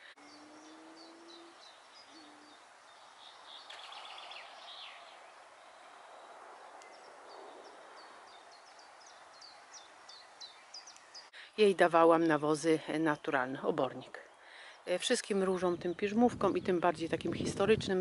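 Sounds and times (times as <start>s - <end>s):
bird hooting: 0.0s - 2.6s
small birds chirping: 0.0s - 11.4s
bird trill: 0.2s - 2.6s.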